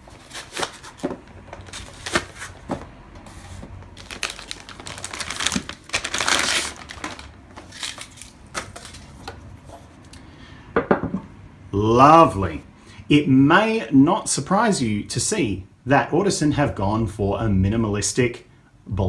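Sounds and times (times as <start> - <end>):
plastic bag crinkling: 3.3 - 9.2.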